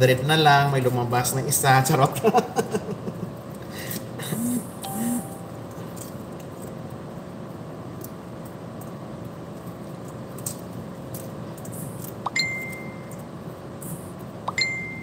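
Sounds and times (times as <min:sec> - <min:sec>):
room hum: 0:00.0 - 0:15.0
short electronic beeps: 0:04.4 - 0:05.5.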